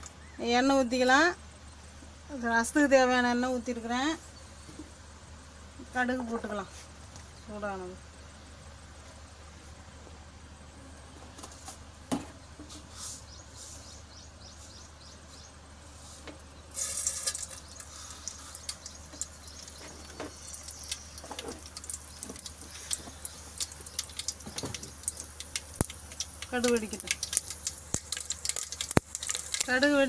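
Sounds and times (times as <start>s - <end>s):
seeds sizzling in hot oil: 15.9s - 30.0s
faint ticks from heating oil: 16.3s - 30.0s
seeds popping and crackling: 16.7s - 30.0s.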